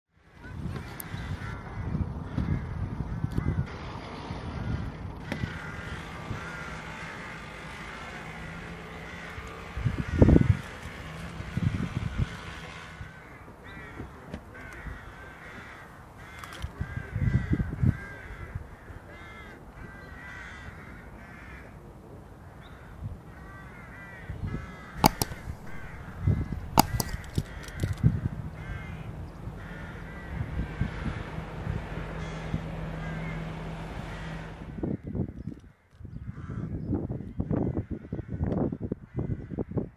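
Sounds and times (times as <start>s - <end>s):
crows cawing: 0.8s - 3.7s, 4.5s - 10.7s, 12.9s - 21.8s, 22.4s - 31.1s, 32.2s - 33.5s, 36.1s - 39.9s
sharp clicks: 25.0s - 28.0s
low rumbles: 25.0s - 30.2s.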